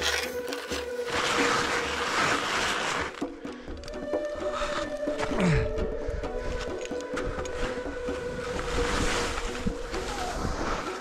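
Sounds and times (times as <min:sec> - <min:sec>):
skis scraping on snow: 0:00.0 - 0:03.5, 0:06.5 - 0:11.0.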